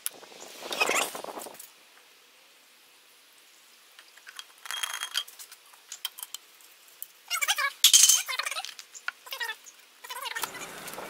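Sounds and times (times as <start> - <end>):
tin handling sounds: 4.2 - 6.4
clinking rattle with thin ring: 4.3 - 5.4.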